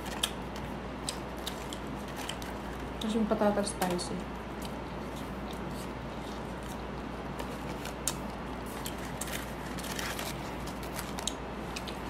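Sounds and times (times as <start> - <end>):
paper packaging clicks: 0.0 - 3.2, 6.6 - 12.0
steady low hum: 0.0 - 12.0
person chewing: 1.0 - 3.0, 4.6 - 12.0.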